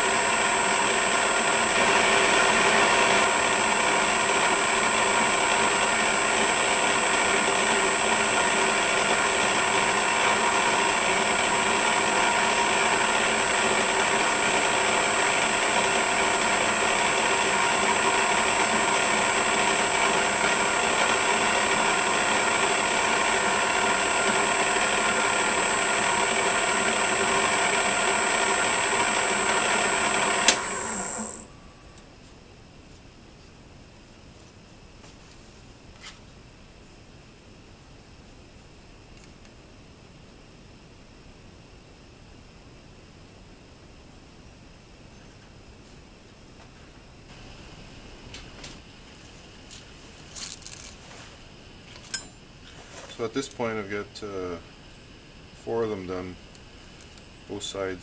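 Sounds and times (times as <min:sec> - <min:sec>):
metal lathe running: 0:00.0 - 0:31.6
high whine: 0:00.0 - 0:32.1.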